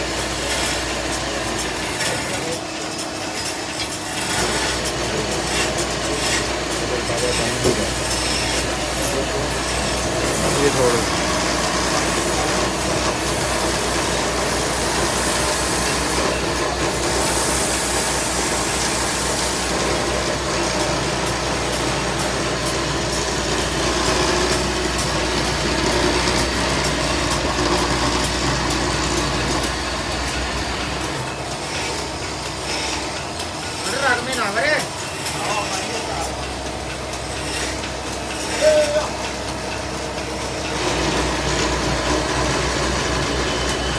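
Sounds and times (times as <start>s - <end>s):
wood lathe humming: 0.0s - 43.9s.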